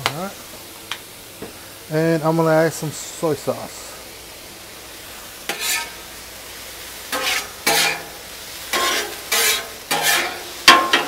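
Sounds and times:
chicken sizzling on griddle: 0.0s - 11.0s
spatula scraping a griddle: 5.4s - 6.1s, 7.1s - 11.0s.

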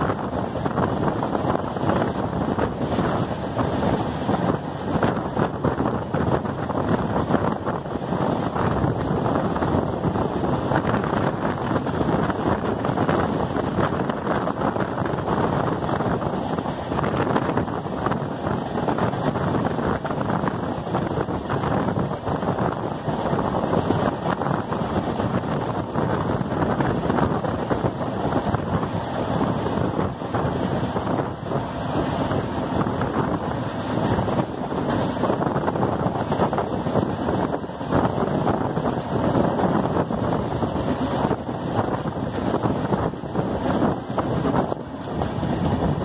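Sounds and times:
train rolling along rails: 0.0s - 46.0s
wind on microphone: 0.0s - 46.0s.

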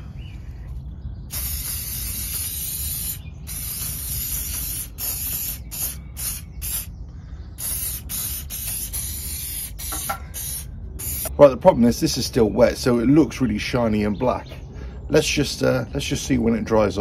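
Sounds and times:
aerosol can spraying: 1.3s - 6.9s, 7.6s - 11.3s.

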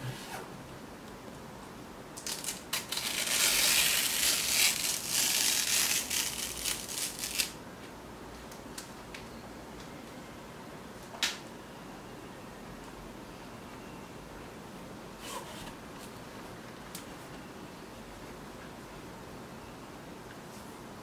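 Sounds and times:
plastic film peeling and crinkling: 2.2s - 7.6s.

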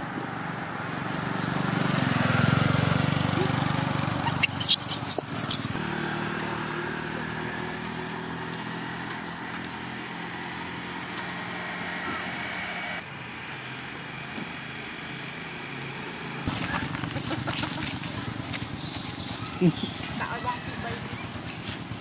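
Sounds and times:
baby monkey screaming: 4.2s - 5.8s.

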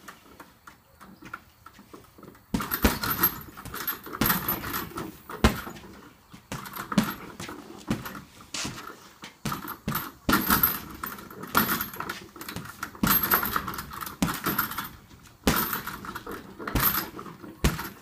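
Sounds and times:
punches hitting heavy bag: 2.5s - 8.8s, 9.4s - 18.0s
metal hardware jingling: 2.6s - 7.4s, 9.5s - 18.0s.

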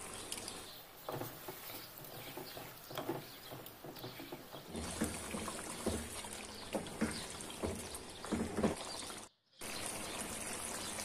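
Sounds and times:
frying hiss: 0.0s - 11.0s
wooden spoon stirring in a pan: 1.0s - 9.0s.

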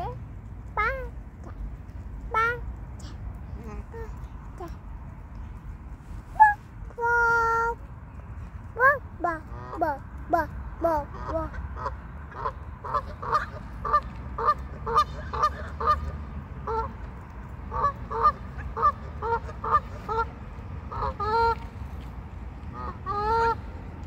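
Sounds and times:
waterfowl calling: 11.0s - 16.9s, 17.7s - 20.3s, 20.9s - 21.6s, 22.7s - 23.6s.

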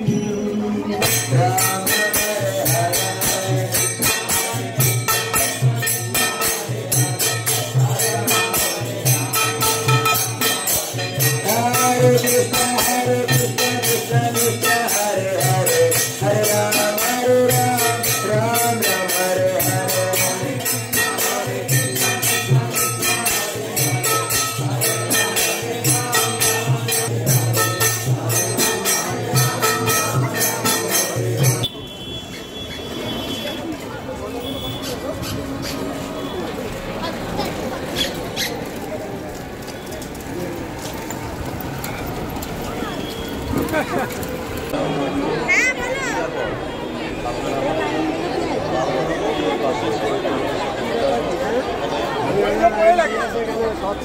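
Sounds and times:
hand cymbals jingling: 0.0s - 31.7s
group chanting: 6.1s - 31.6s.

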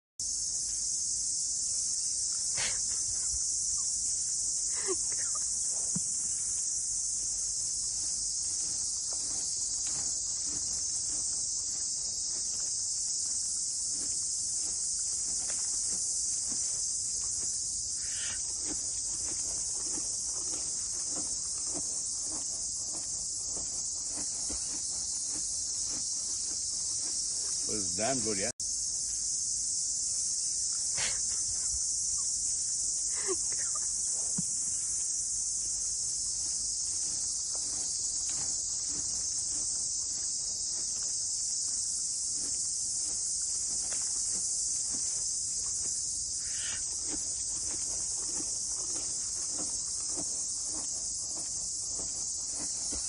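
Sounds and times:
high-pitched insect chorus: 0.2s - 53.0s.

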